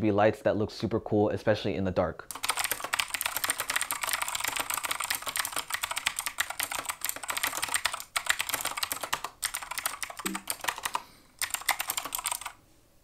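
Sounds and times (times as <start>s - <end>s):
mechanical keyboard typing: 2.3s - 12.6s.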